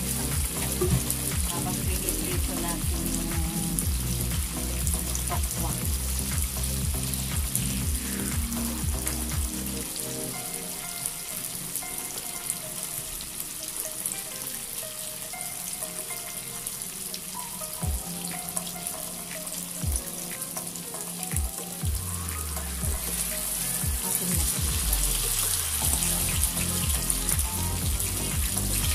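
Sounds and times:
background music: 0:00.0 - 0:28.9
tofu sizzling in oil: 0:24.8 - 0:28.9.

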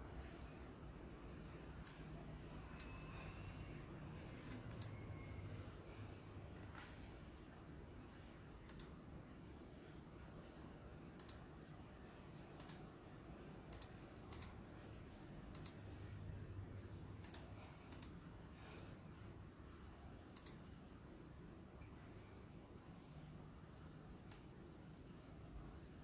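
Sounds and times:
faint sharp clicks: 0:08.6 - 0:09.0.

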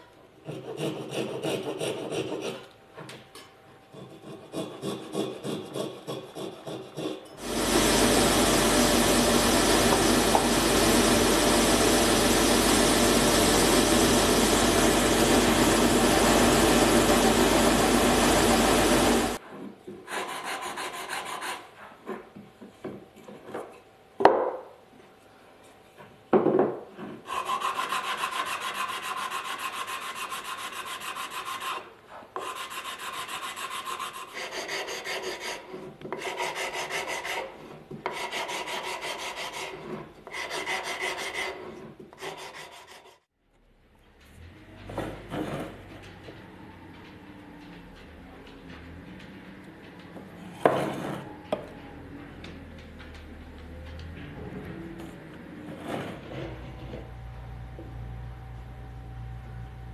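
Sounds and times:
workshop machine running: 0:07.4 - 0:19.4, 0:43.6 - 0:59.9
sandpaper rubbing on wood: 0:27.3 - 0:31.8, 0:32.4 - 0:43.2.

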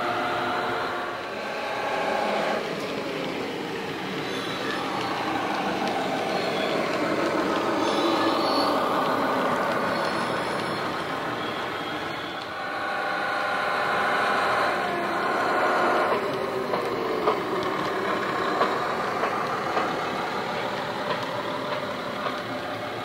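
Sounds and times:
model locomotive engine sound: 0:00.0 - 0:23.0.

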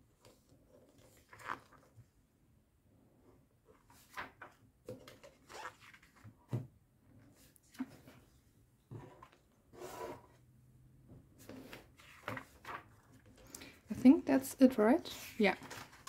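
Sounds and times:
magazine pages turning: 0:00.3 - 0:02.0, 0:03.8 - 0:06.3, 0:11.4 - 0:13.4, 0:15.3 - 0:16.0.

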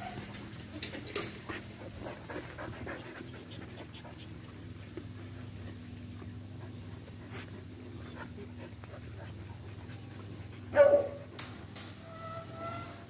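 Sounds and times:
dogs panting: 0:00.0 - 0:13.0
dog barking: 0:10.7 - 0:11.2.

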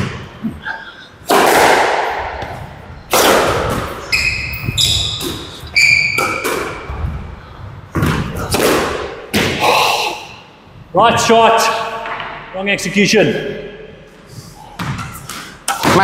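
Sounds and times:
squash ball hitting racket and walls: 0:00.0 - 0:00.5, 0:01.2 - 0:09.7, 0:14.7 - 0:16.0
shoes squeaking on floor: 0:04.0 - 0:06.5.

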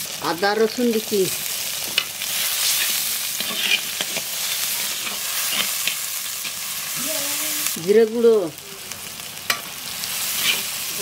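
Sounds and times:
onions sizzling in oil: 0:00.0 - 0:11.0
metal spatula scraping pot: 0:02.0 - 0:06.6, 0:10.3 - 0:10.7.

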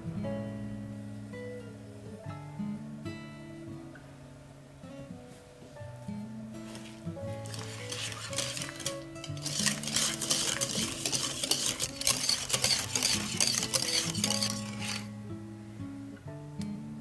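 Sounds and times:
soft guitar music: 0:00.0 - 0:17.0
whisk scraping glass bowl: 0:07.4 - 0:15.1.

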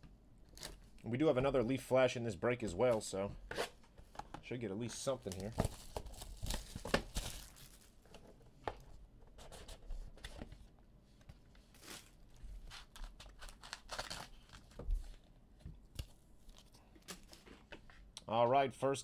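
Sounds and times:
card wrappers tearing and crinkling: 0:04.9 - 0:08.0, 0:11.7 - 0:14.8.

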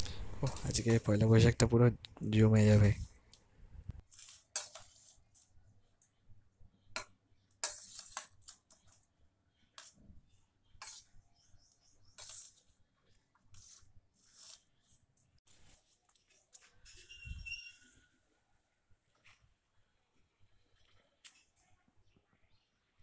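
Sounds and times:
metal spatula scraping steel pan: 0:04.1 - 0:05.4, 0:07.6 - 0:09.0, 0:10.8 - 0:11.2, 0:12.0 - 0:12.7, 0:16.8 - 0:18.1.

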